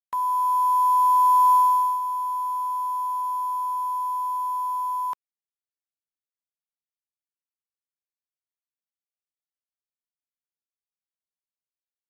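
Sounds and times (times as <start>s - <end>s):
steady test tone beep: 0.2s - 5.2s.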